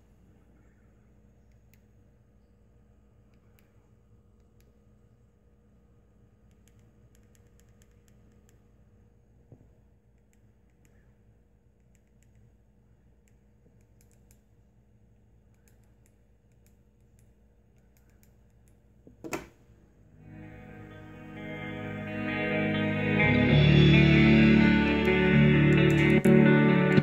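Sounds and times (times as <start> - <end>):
faint low hum: 0.0 - 27.0.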